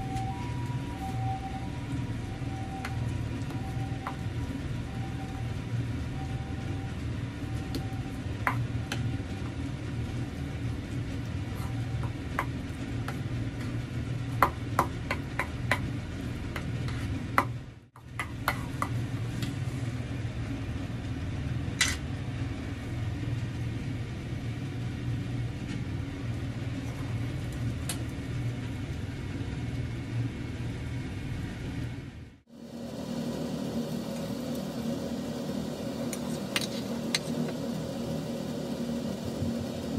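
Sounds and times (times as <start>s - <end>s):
steady low hum: 0.0s - 39.9s.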